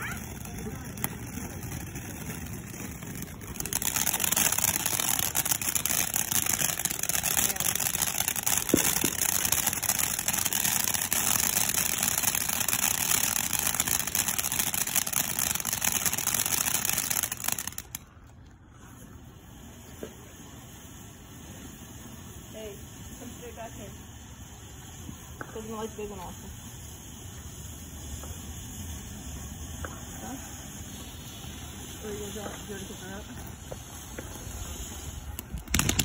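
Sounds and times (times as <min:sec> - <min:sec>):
firework crackling: 0:00.0 - 0:36.0
firework hissing: 0:00.0 - 0:36.0.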